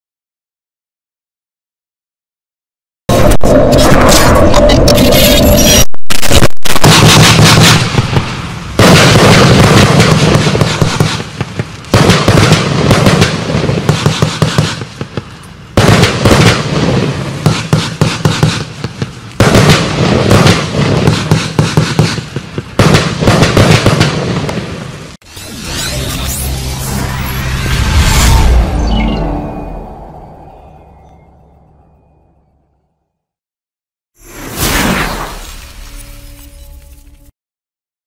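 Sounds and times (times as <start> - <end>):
fireworks popping and banging: 3.1 - 24.9.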